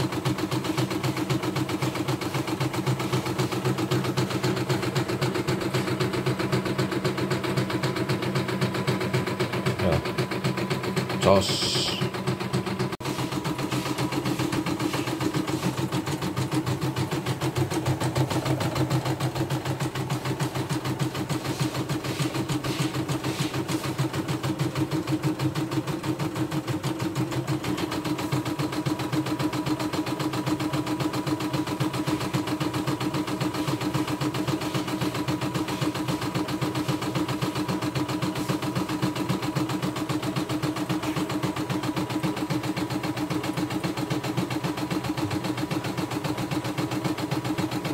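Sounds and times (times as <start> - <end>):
motor hum: 0.0 - 46.6.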